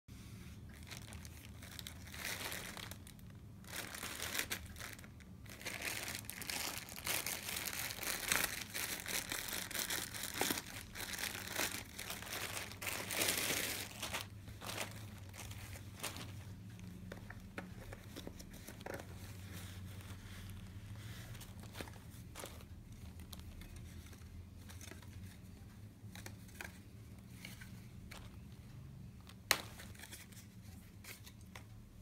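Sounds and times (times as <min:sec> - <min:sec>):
plastic bag crinkling: 0:00.7 - 0:24.0.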